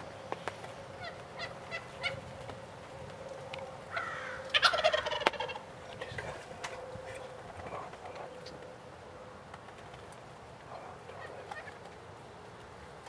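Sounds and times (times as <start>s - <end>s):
turkey gobbling: 0.9s - 12.1s
short turkey calls: 1.0s - 2.2s, 3.5s - 8.6s, 10.6s - 12.0s.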